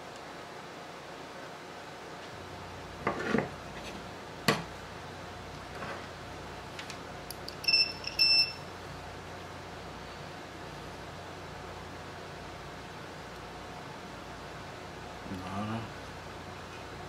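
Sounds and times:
multimeter beeps: 7.6 - 8.7.

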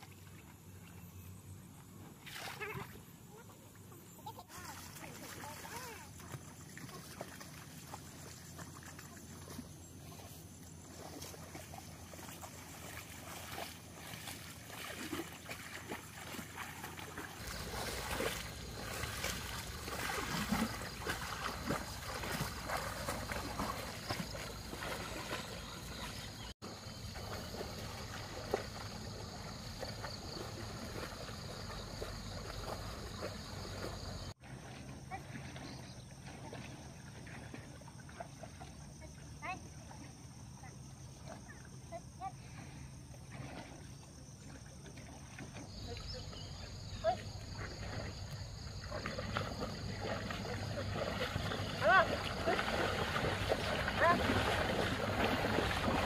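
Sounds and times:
muddy water sloshing and splashing: 0.0 - 56.0.

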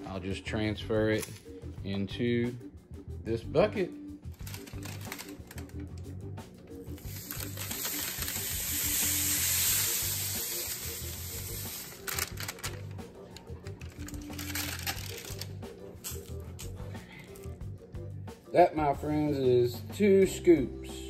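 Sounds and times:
faint background music: 0.0 - 21.0
paper crinkling and tapping: 4.4 - 6.0, 12.0 - 15.5
granular material pouring: 7.0 - 12.6.

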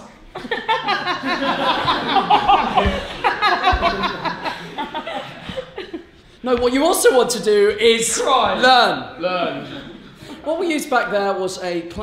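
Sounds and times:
audience laughing: 0.0 - 6.3.

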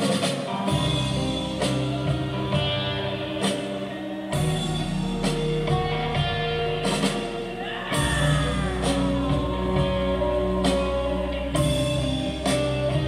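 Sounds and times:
keyboard and guitar tones: 0.0 - 13.0
deep bass line: 4.3 - 13.0.

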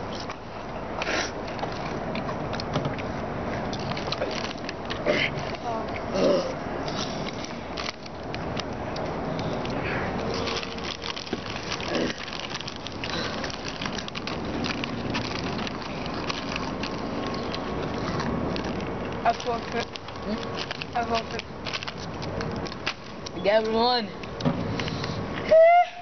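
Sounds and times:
crunchy snacks being chewed: 1.0 - 23.4
foil snack bags crinkling: 3.7 - 5.9, 6.9 - 25.2.

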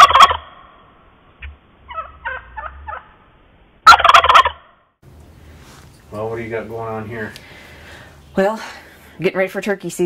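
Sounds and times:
soft turkey calls: 0.0 - 0.6, 1.4 - 3.2, 3.8 - 4.7
turkey gobbling: 0.0 - 0.8, 1.4 - 4.8.

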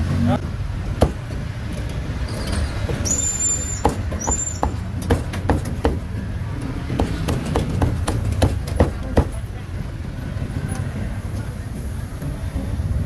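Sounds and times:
traffic rumble: 0.0 - 13.0
cleaver chopping on wooden block: 1.0 - 1.5, 3.8 - 6.1, 6.9 - 9.4
high-pitched squeal: 2.2 - 4.8.

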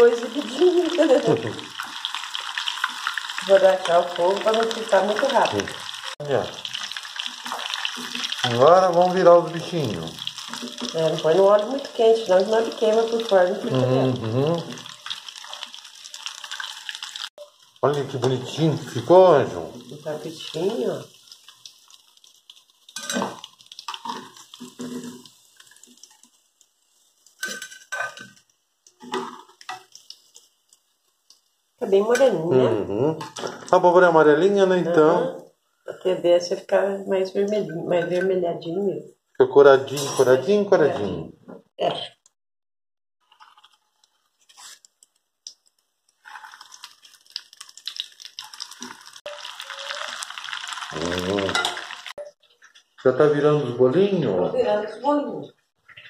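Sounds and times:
oil sizzling and crackling: 0.0 - 39.0, 43.2 - 56.0
batter dropped into hot oil: 22.5 - 26.2
metal spoon scraping a pot: 23.0 - 25.4, 27.4 - 28.4.

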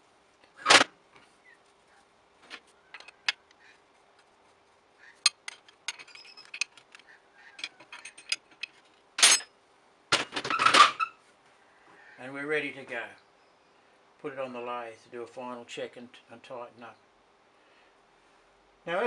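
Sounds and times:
spanner and bolts clinking on metal: 5.2 - 9.5.

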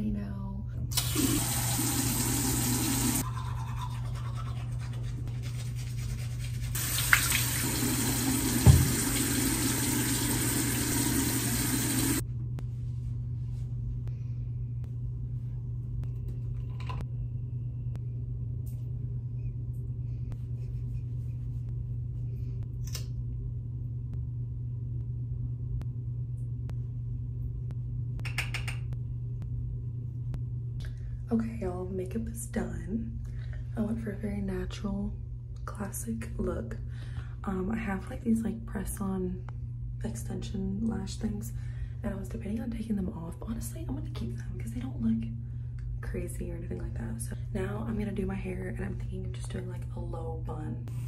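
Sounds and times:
steady low hum: 0.0 - 51.0
teeth brushing: 3.2 - 6.8
tap water running into sink: 6.8 - 12.2.

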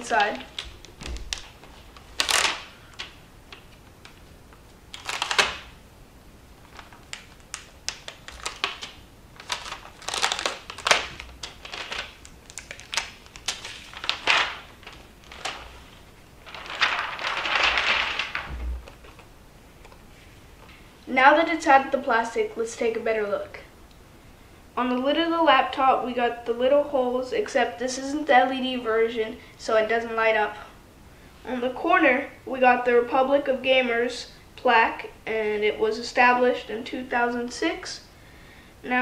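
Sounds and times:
plastic wrapping crinkling: 0.0 - 5.8, 6.5 - 20.1
low thump: 18.5 - 18.8.

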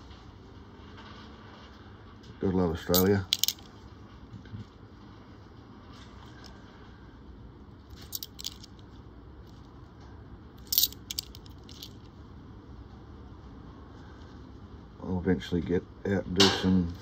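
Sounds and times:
coins clinking: 2.9 - 3.7, 8.0 - 8.8, 10.6 - 12.0.

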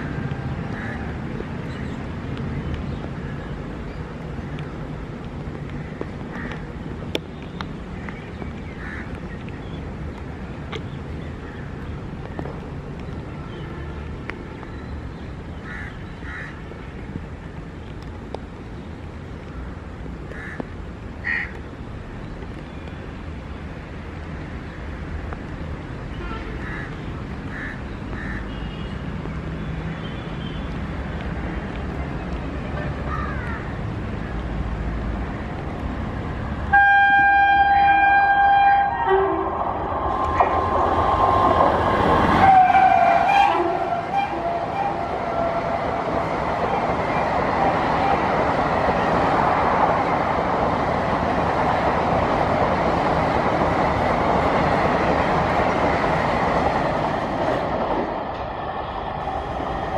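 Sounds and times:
train rumbling: 0.0 - 59.9
locomotive horn blast: 36.7 - 39.6, 42.3 - 46.1.

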